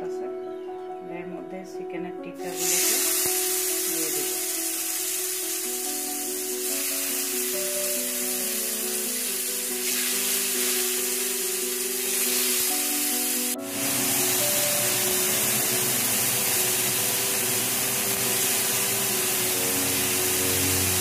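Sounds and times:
background music with held notes: 0:00.0 - 0:21.0
chicken sizzling on grill pan: 0:02.5 - 0:21.0.

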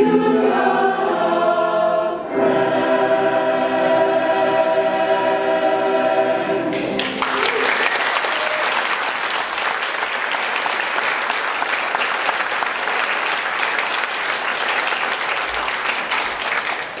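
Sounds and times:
audience applauding: 0:06.7 - 0:17.0.

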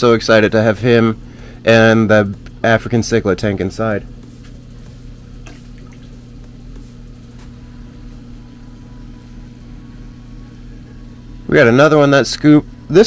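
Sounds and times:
steady low hum: 0:00.0 - 0:13.0
water dripping and sloshing: 0:05.5 - 0:06.2.

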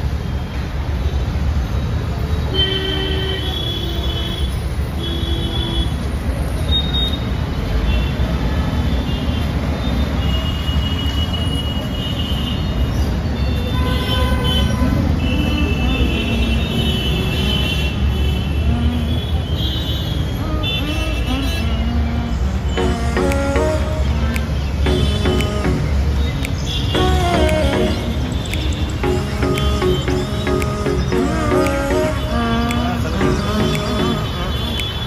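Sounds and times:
road traffic rumble: 0:00.0 - 0:35.0
car horn toots: 0:22.8 - 0:25.9.

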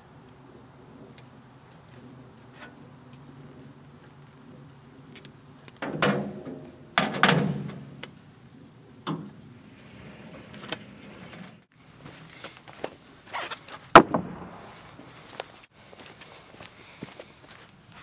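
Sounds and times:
wooden boards knocking and clattering: 0:14.0 - 0:14.6.

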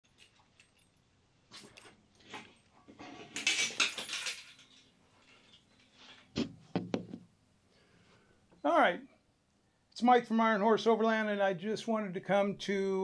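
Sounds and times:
rustling and scraping of chair: 0:01.5 - 0:03.9, 0:04.6 - 0:07.2.

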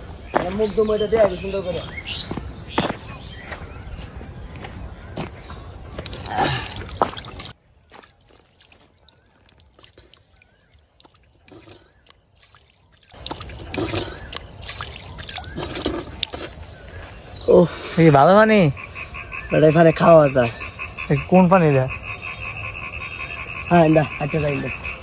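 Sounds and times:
hand splashing in water: 0:06.0 - 0:16.6.

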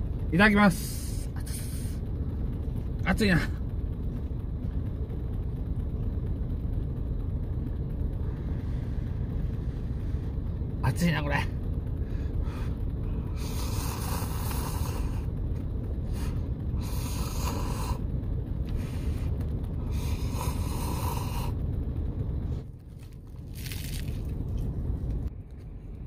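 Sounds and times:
low steady rumble: 0:00.0 - 0:26.0
person slurping noodles: 0:13.4 - 0:15.1.

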